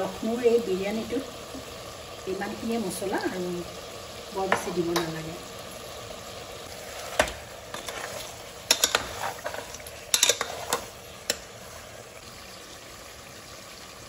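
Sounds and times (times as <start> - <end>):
frying sizzle: 0.0 - 14.0
metal spoon scraping pot: 6.8 - 12.0.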